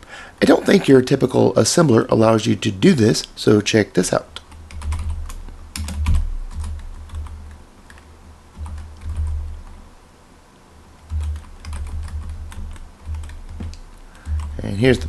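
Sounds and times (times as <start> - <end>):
typing on a keyboard: 4.5 - 8.0, 11.1 - 14.5.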